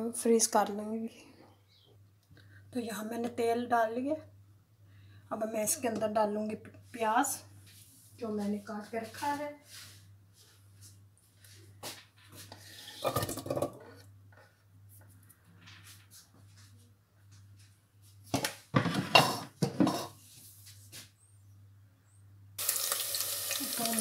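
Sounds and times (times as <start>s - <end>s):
dishes and utensils clinking: 19.0s - 20.2s.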